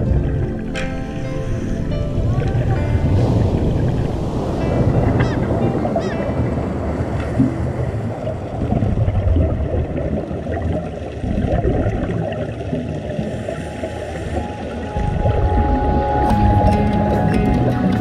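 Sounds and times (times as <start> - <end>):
underwater rumbling and gurgling: 0.0 - 18.0.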